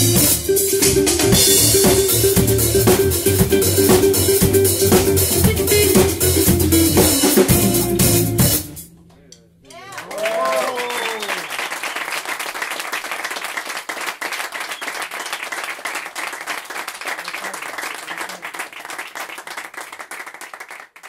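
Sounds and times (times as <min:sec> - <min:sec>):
audience applauding: 0:09.8 - 0:21.0.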